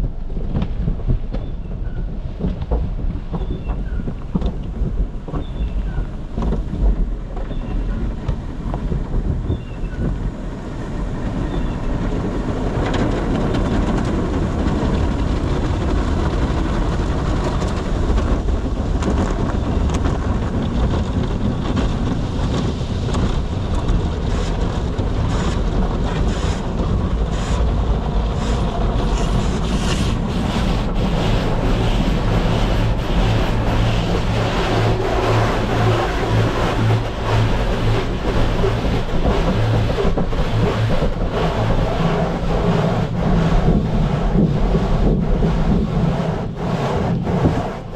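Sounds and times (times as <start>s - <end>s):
low rumble: 0.0s - 47.9s
water spray rushing: 24.2s - 47.9s.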